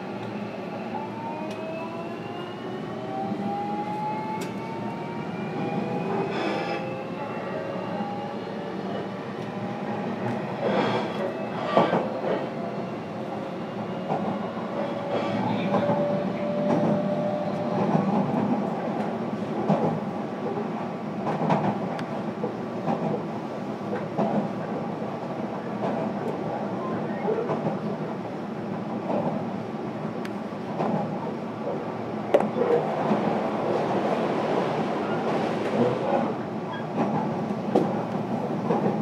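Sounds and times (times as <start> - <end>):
rail-joint clacks: 10.2 - 12.4, 15.0 - 20.0, 21.2 - 23.3, 35.3 - 39.0.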